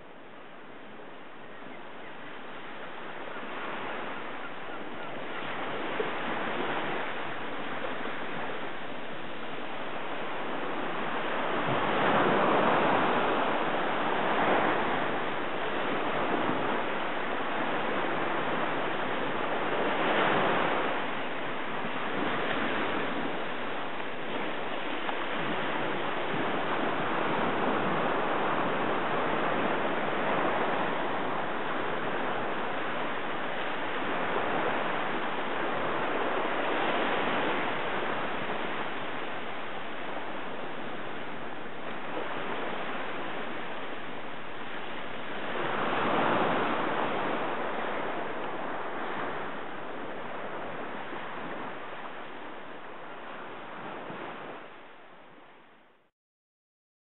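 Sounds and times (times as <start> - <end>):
waves washing on sandy beach: 0.0 - 55.9.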